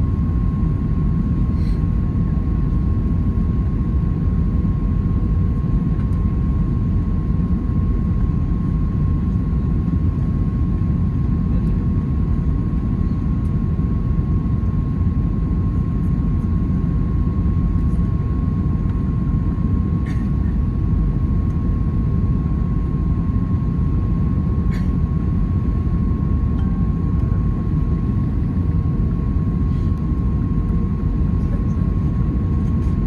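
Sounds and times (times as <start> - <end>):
airplane engine rumble and airflow: 0.0 - 33.0
thin steady whine: 5.7 - 33.0.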